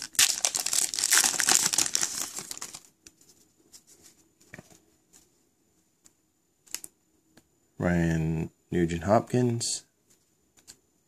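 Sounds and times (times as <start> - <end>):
foil wrapper crinkling: 0.0 - 2.9
faint clicks of cards handled: 10.0 - 10.8.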